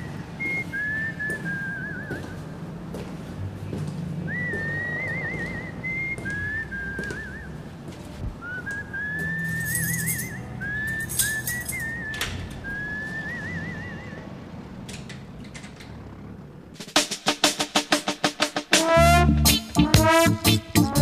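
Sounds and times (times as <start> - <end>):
whistled melody: 0.4 - 2.3, 4.3 - 7.6, 8.4 - 14.3
low bass line: 19.0 - 21.0.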